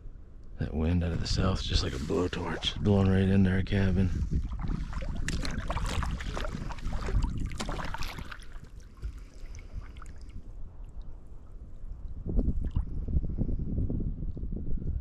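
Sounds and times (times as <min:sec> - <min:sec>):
wind on microphone: 0:00.0 - 0:15.0
paddle splashing water: 0:04.3 - 0:10.4.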